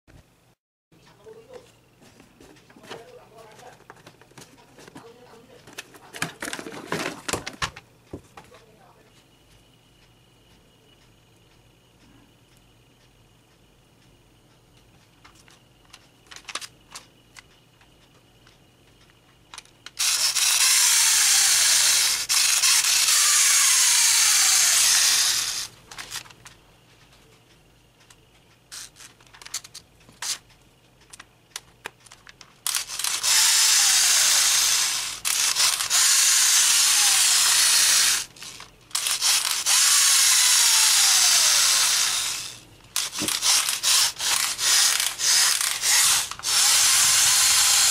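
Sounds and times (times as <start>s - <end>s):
clockwork gears whirring: 15.4s - 47.9s.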